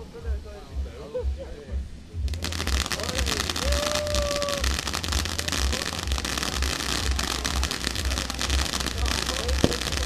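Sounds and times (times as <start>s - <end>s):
firework fountain hissing and crackling: 2.2s - 10.0s.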